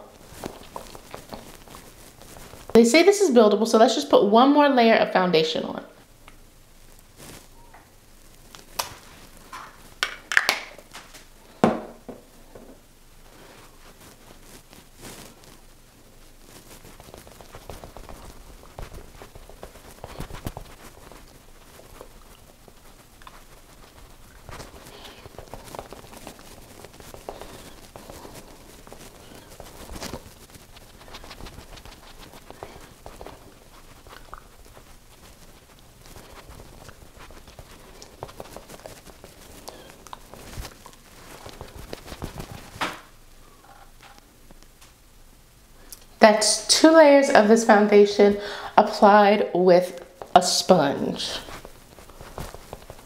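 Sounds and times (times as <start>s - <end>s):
sponge patting on face: 16.5s - 43.1s.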